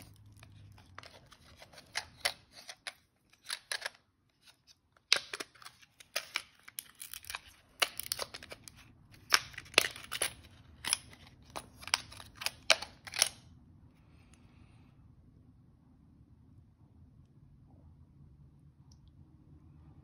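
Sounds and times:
plastic packaging crackling: 0.0s - 13.4s.

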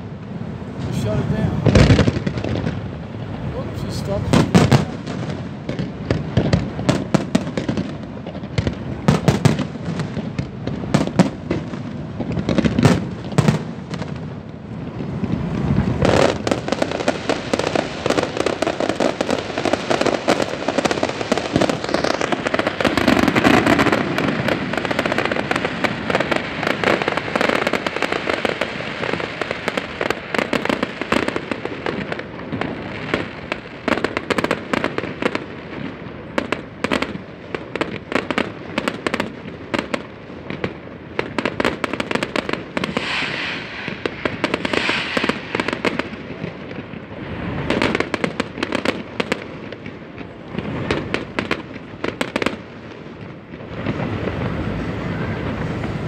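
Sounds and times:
firework shell bursts: 42.2s - 46.9s.

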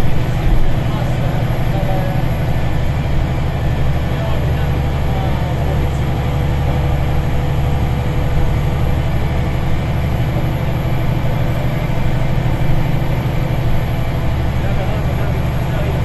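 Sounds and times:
bus diesel engine droning: 0.0s - 16.0s.

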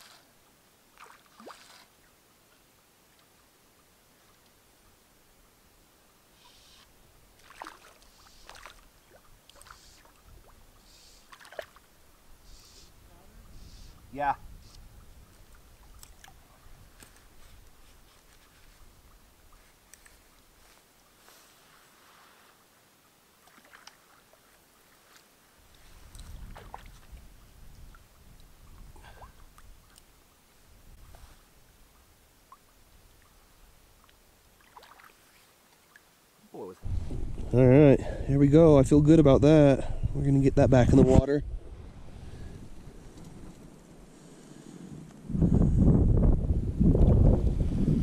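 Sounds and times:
water splashing and dripping: 7.3s - 11.9s, 15.3s - 16.5s, 23.4s - 24.4s, 25.7s - 30.1s, 34.0s - 36.1s
low rumble: 36.8s - 38.4s.

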